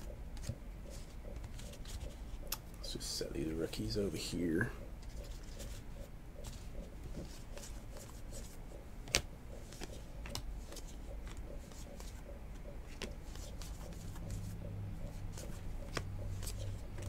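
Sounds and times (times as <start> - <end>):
cards sliding and flicking: 6.4 - 12.2, 12.8 - 14.6, 15.3 - 17.0.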